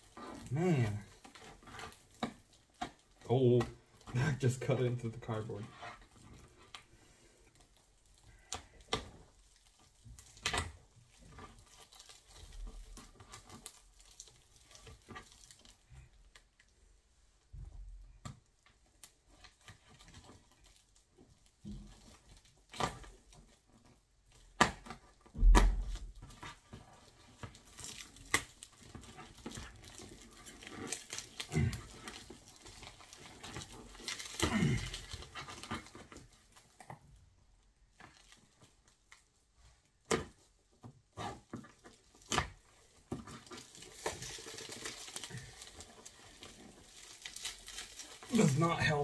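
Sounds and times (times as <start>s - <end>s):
packaging crinkling: 0.0s - 16.7s, 18.8s - 37.2s, 37.9s - 39.3s, 40.0s - 49.0s
knife tearing taped packaging: 11.4s - 15.8s, 25.8s - 36.7s, 41.2s - 49.0s
person groaning with effort: 31.5s - 31.9s, 34.4s - 35.1s.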